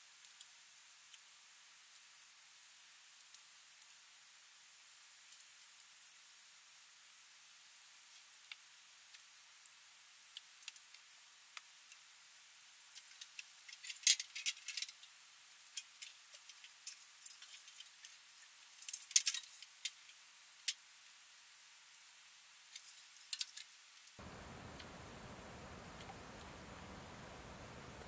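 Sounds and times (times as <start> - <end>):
faint steady hiss: 0.0 - 28.0
light clicks and taps: 22.8 - 28.0.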